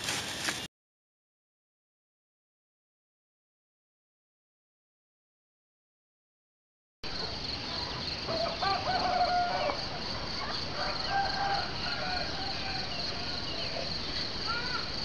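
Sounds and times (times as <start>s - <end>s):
roosters crowing: 8.3s - 10.1s, 10.7s - 13.6s.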